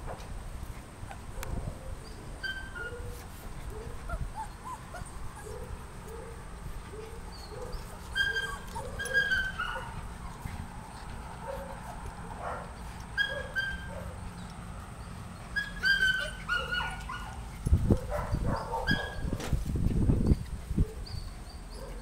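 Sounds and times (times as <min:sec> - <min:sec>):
puppies whimpering and yipping: 0:01.0 - 0:22.0.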